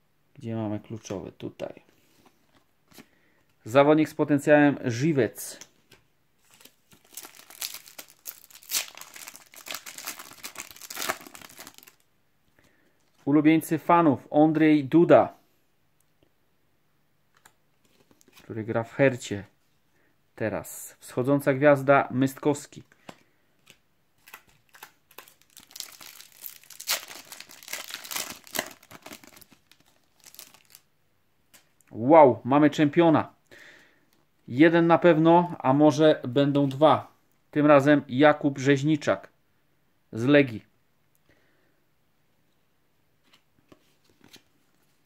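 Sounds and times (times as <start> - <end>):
foil packet crinkling: 6.4 - 12.0, 24.2 - 30.8.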